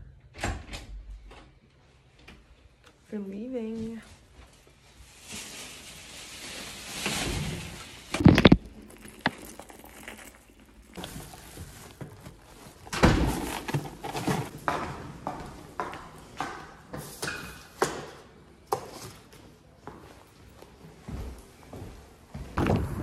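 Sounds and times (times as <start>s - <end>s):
plastic bags rustling: 4.2s - 14.6s.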